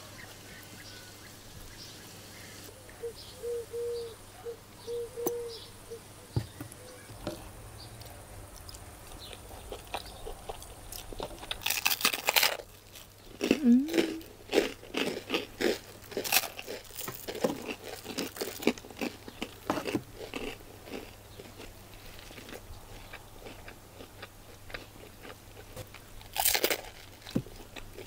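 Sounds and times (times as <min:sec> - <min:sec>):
crunching bread bite: 0:08.6 - 0:28.0.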